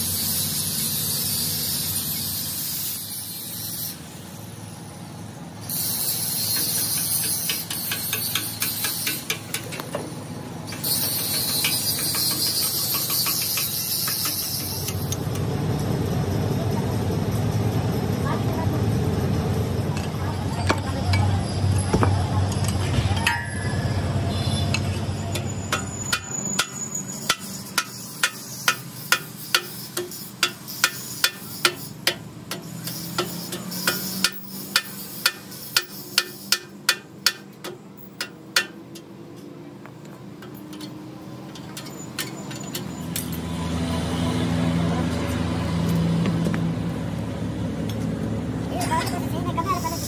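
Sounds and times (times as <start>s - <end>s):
hammer striking steel: 6.4s - 10.1s, 10.7s - 15.2s, 23.1s - 39.1s.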